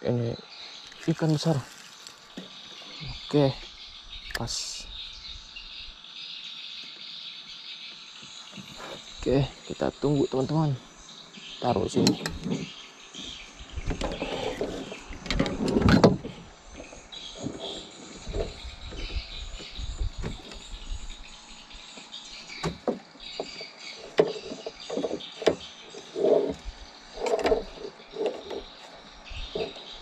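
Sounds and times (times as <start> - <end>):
faint high chirping: 16.2 - 30.0.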